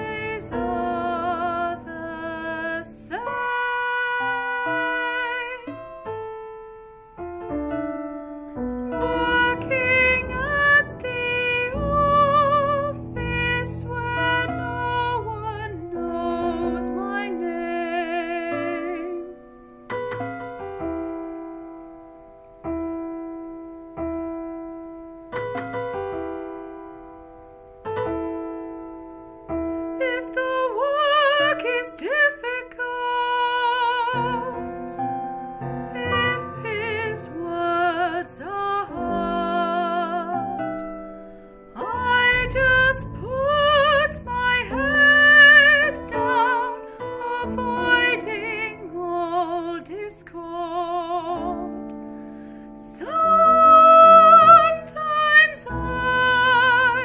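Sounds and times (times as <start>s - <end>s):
piano chords: 0.0s - 57.0s
woman singing operatic lament: 9.0s - 19.4s, 41.8s - 51.7s, 52.8s - 57.0s.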